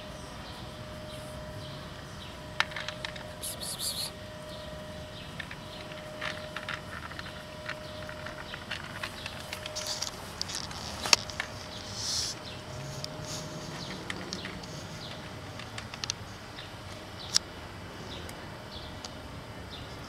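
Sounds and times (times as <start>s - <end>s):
cat crunching dry kibble: 5.4s - 16.2s.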